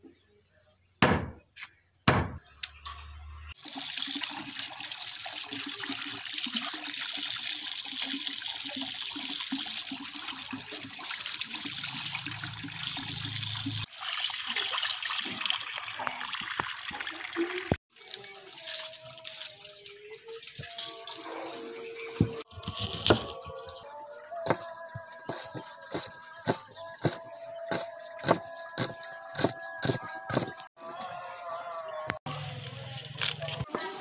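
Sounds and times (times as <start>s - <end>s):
sharp knocks: 1.0s - 1.4s
water pouring from a pipe: 3.6s - 21.8s, 22.4s - 29.4s.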